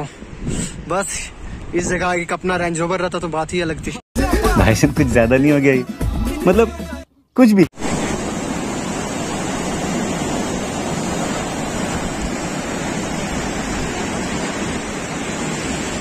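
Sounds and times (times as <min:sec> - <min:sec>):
river rushing over boulders: 0:07.8 - 0:16.0.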